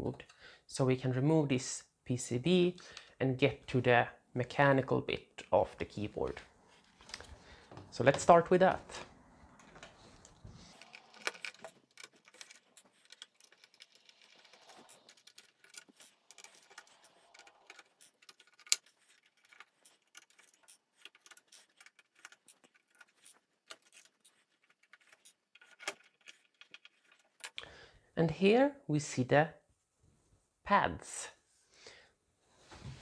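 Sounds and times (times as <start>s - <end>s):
screwdriver clicking and scraping: 9.6s - 27.6s.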